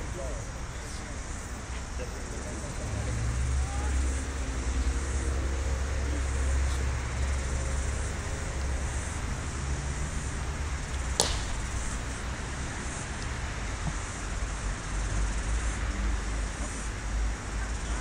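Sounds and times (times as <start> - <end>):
cricket bat striking ball: 11.0 - 12.4.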